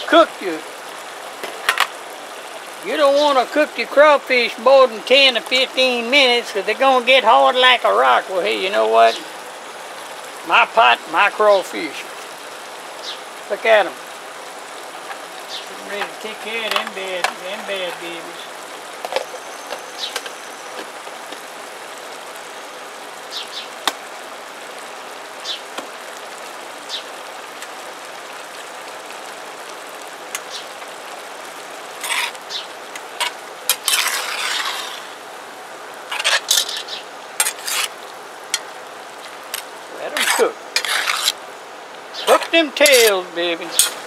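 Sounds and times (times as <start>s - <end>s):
metal spoon scraping a pot: 32.0s - 32.4s, 33.2s - 35.1s, 36.1s - 38.0s, 39.6s - 41.4s, 42.3s - 44.0s.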